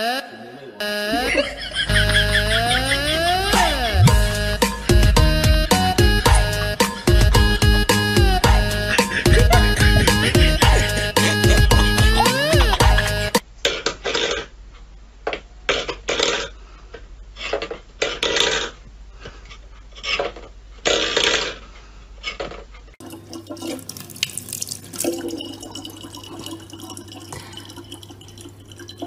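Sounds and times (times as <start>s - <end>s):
low hum: 1.2s - 13.2s
tap water trickling into bottle: 23.1s - 29.0s.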